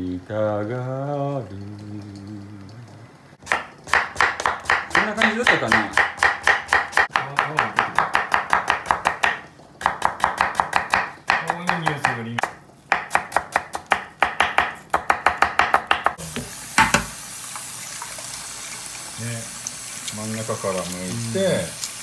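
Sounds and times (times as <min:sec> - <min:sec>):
tap water running into metal pot: 0:16.2 - 0:22.0.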